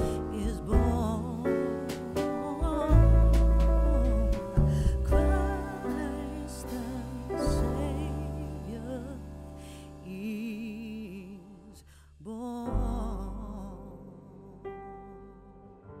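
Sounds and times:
slow song with vibrato melody: 0.0s - 11.6s
steady bass: 0.0s - 15.7s.

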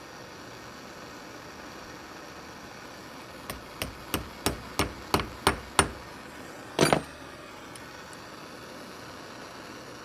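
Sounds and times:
gas torch flame hissing: 0.0s - 10.0s
small hammer tapping steel: 3.5s - 6.0s.

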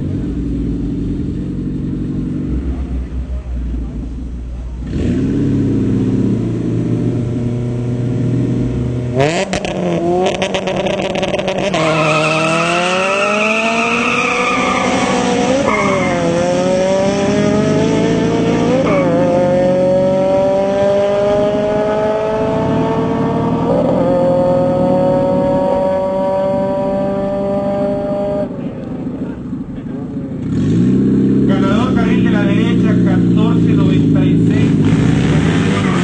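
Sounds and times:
car engine accelerating hard: 0.0s - 36.0s
drag racing cars revving: 0.0s - 36.0s.

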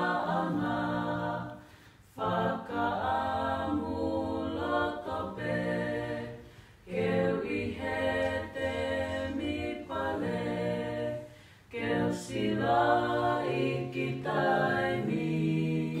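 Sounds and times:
group singing a cappella: 0.0s - 16.0s.

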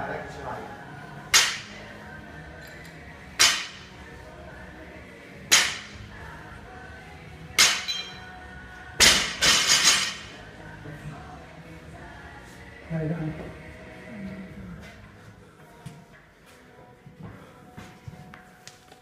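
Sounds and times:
barbell hitting gym floor: 1.3s - 1.7s, 3.4s - 3.9s, 5.5s - 6.0s, 7.6s - 8.1s, 9.0s - 10.3s.

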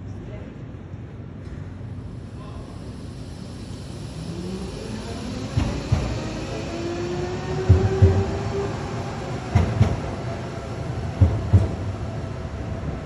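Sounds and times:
tram wheels thumping over rail gap: 7.5s - 8.7s, 9.3s - 12.2s.

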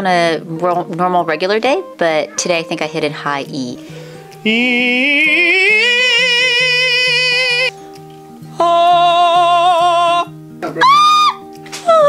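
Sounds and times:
soft background music: 0.0s - 12.0s
person singing with vibrato: 3.8s - 7.8s, 8.5s - 10.4s.

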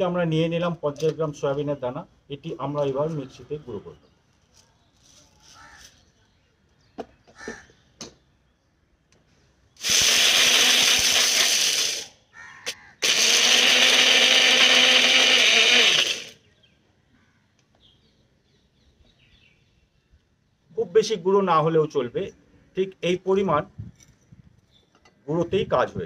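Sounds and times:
mixer grinder motor grinding: 9.8s - 12.1s, 13.0s - 16.4s.

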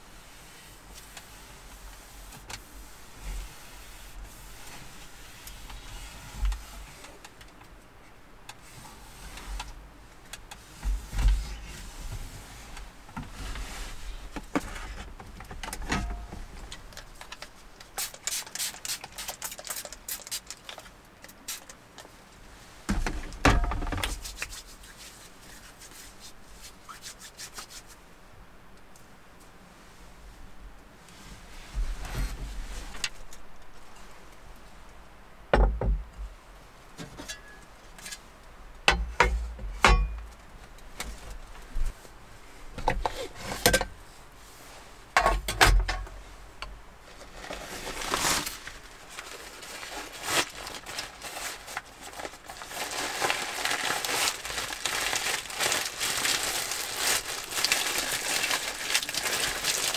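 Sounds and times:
hands rubbing together: 24.1s - 28.0s
short rubbing strokes: 24.1s - 28.0s
knocks and thumps: 35.5s - 36.2s.

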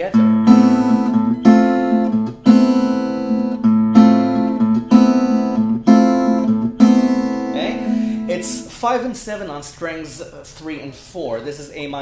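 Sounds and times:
acoustic guitar strumming chord: 0.1s - 8.8s.

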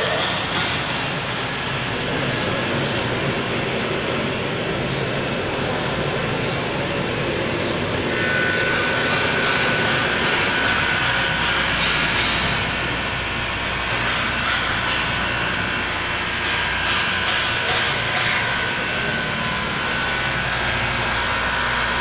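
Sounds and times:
thin steady whine: 3.1s - 22.0s
glass edging machine grinding: 8.1s - 22.0s.

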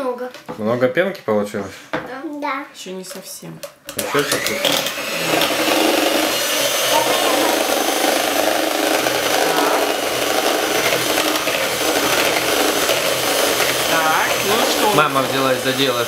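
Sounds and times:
electric hand mixer whipping cream: 3.9s - 16.0s.

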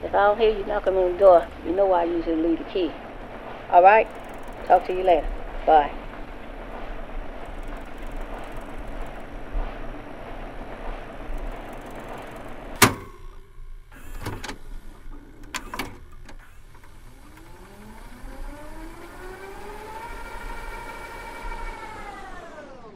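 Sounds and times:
rising motor whine: 4.0s - 22.9s
sharp click: 11.4s - 13.5s.

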